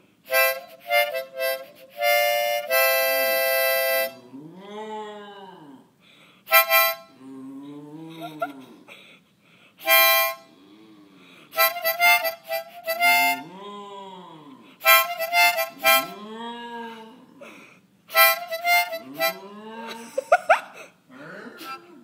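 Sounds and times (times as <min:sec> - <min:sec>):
harmonica blasts and chords: 0:00.3 - 0:04.2, 0:06.5 - 0:07.1, 0:09.8 - 0:10.5, 0:11.6 - 0:13.4, 0:14.8 - 0:16.1, 0:18.1 - 0:19.4.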